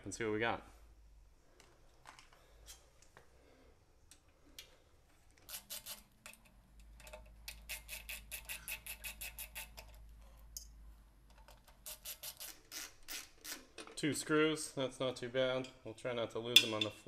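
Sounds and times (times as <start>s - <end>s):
ratchet screwdriver clicking: 5.4s - 6.4s, 7.0s - 10.0s, 11.7s - 13.6s.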